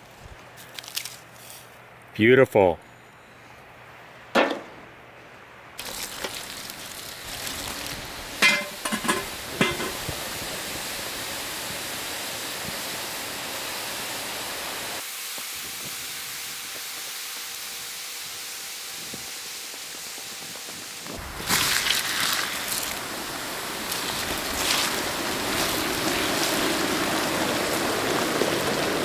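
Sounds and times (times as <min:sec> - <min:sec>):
quicklime hissing and sizzling: 0:05.8 - 0:29.0.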